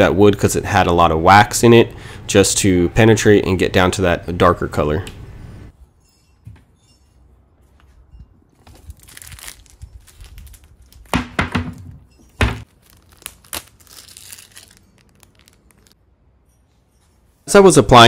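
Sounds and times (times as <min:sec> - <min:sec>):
sharp knocks and clunks: 0:11.1 - 0:12.6.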